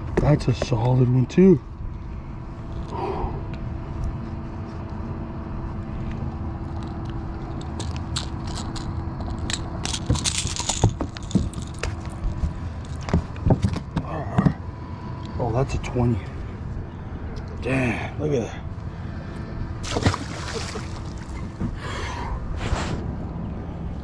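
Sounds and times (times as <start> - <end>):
steady low hum: 0.0 - 24.0
metal pliers and hooks rattling: 6.8 - 12.2.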